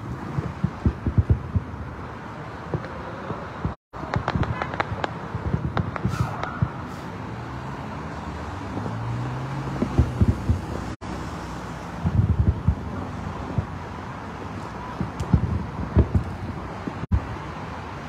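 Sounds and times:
distant fireworks thuds: 0.0 - 11.0, 11.8 - 17.4
wind on microphone: 0.0 - 17.6
highway traffic hum: 0.0 - 18.0
vehicle engine passing: 6.4 - 12.2.

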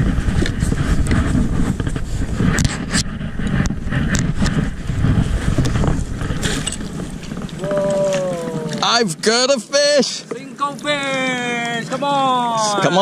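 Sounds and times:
wind rumble: 0.0 - 9.4.

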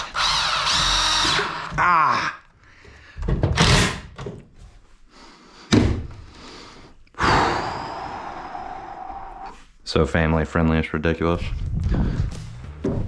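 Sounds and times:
thuds and knocks on wood: 5.7 - 6.2, 11.8 - 13.0.

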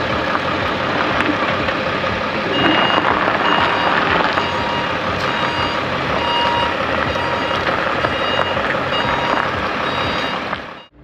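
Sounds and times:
vehicle noise: 0.0 - 11.0
reversing alarm beeping: 2.4 - 11.0.

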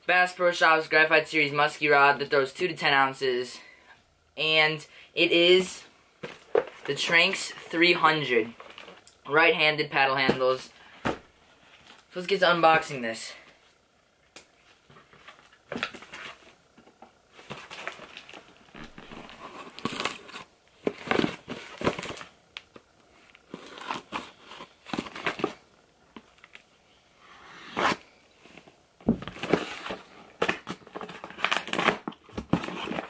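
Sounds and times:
cardboard flaps tearing open: 29.1 - 33.0.

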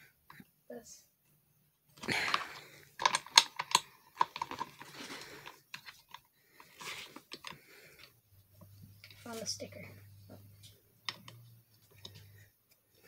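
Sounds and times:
rustling: 2.0 - 10.8.

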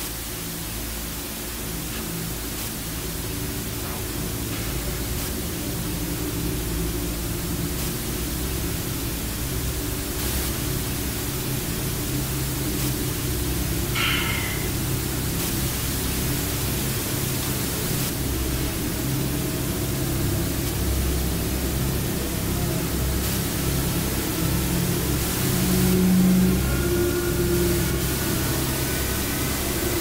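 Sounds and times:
steady loud hiss: 0.0 - 30.0
low even drone: 0.2 - 30.0.

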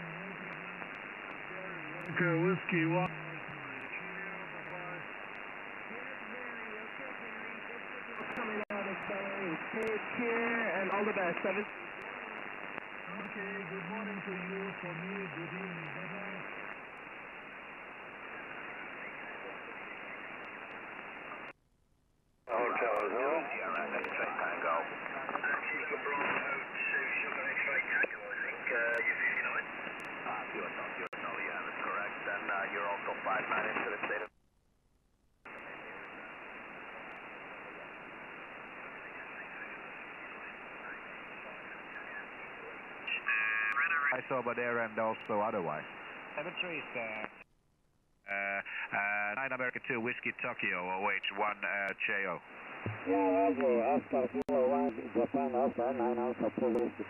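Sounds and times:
radio static hiss: 0.0 - 21.6, 22.5 - 34.3, 35.5 - 47.5, 48.3 - 57.0
whistling garbled radio tones: 18.0 - 21.5, 38.7 - 44.2.

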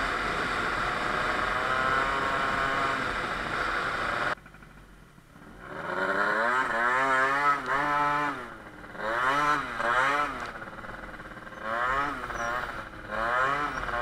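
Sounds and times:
scooter engine revving: 0.0 - 4.8, 5.4 - 14.0.

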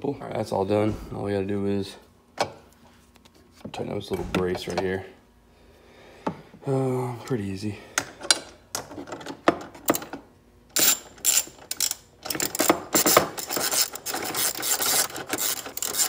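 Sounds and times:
ratchet clicking: 10.8 - 16.0.

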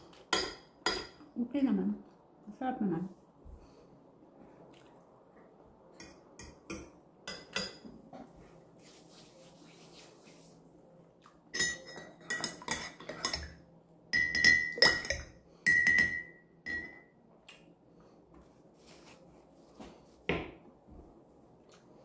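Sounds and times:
cutlery clinking on ceramic: 0.3 - 1.2, 6.0 - 7.9, 11.5 - 13.6, 14.2 - 17.1.

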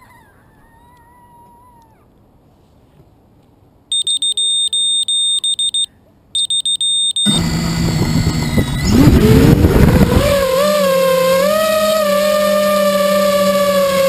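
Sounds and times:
high-pitched beeper pulses: 3.9 - 9.2
drone motors whining: 7.2 - 14.0.

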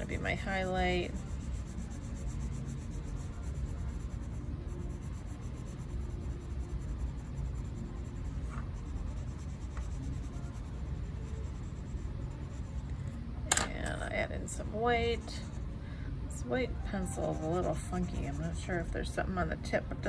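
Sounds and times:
pencil scratching on paper: 0.0 - 13.0, 15.0 - 15.6, 17.0 - 19.1.

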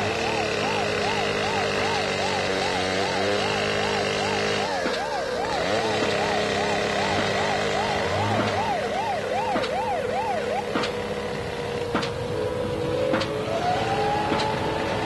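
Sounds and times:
siren wailing: 0.0 - 15.0
sharp clicks: 14.2 - 14.6.

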